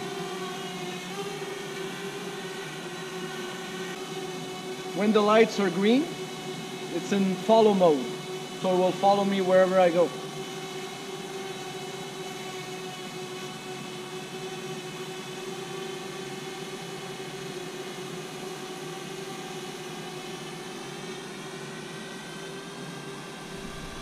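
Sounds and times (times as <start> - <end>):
drone propellers humming: 1.2 - 11.0, 23.1 - 24.0.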